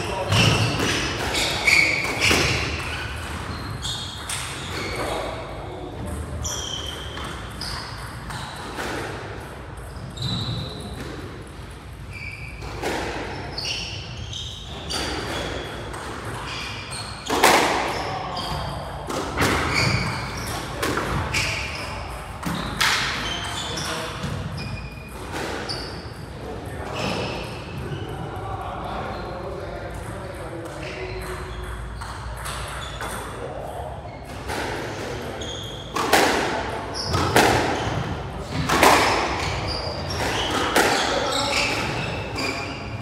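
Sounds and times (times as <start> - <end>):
shoes squeaking on wooden floor: 0.0 - 5.3, 6.2 - 8.8, 9.8 - 11.0, 12.1 - 18.8, 19.4 - 26.2, 26.9 - 28.2, 35.2 - 36.2, 36.8 - 43.0
squash ball hitting rackets and walls: 0.0 - 43.0.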